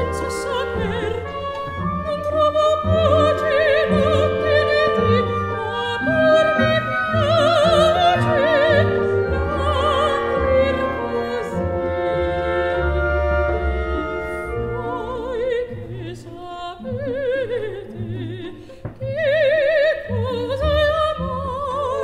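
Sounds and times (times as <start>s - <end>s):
operatic singing with vibrato: 0.0s - 22.0s
orchestral accompaniment: 0.0s - 22.0s.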